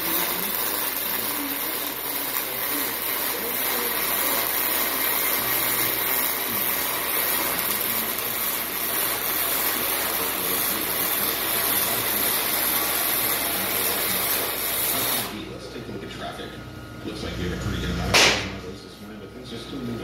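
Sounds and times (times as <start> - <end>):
welding arc hissing: 0.0 - 15.5.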